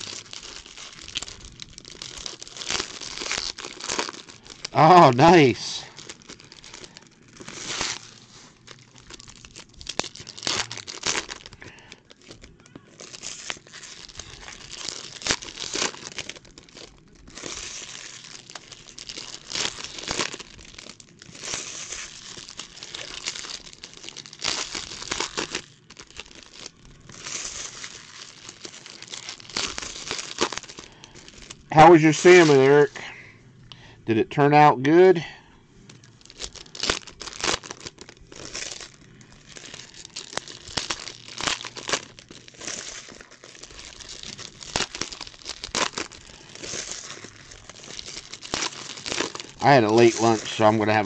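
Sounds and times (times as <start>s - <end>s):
foil wrappers tearing and crinkling: 0.0s - 33.2s, 35.8s - 51.0s
cards being handled: 49.1s - 51.0s.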